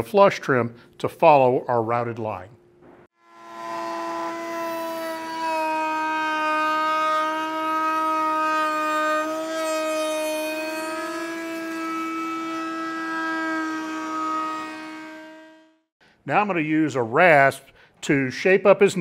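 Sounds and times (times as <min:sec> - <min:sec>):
router running with high whine: 0:03.2 - 0:15.8.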